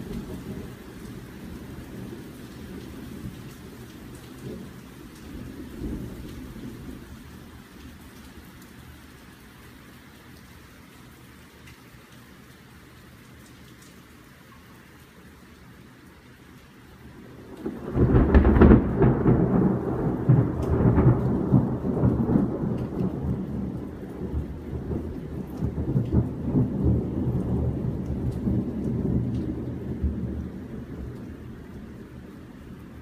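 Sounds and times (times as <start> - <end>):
steady rain: 0.0 - 33.0
thunderclap and rolling thunder: 4.2 - 7.2, 17.2 - 32.0.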